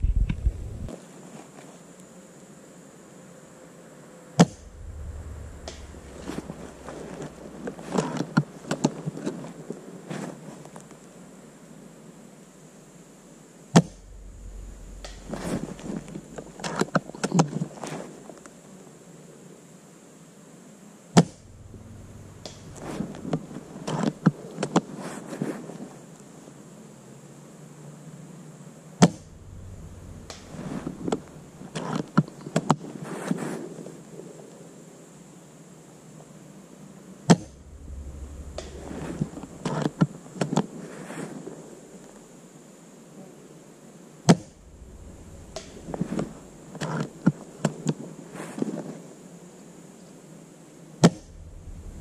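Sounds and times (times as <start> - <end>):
airsoft rifle shot: 13.8 - 16.8.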